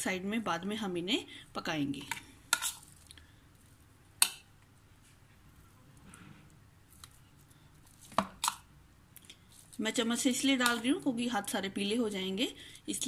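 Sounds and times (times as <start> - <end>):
spoon scraping and squishing filling: 1.9 - 4.5, 5.6 - 11.1.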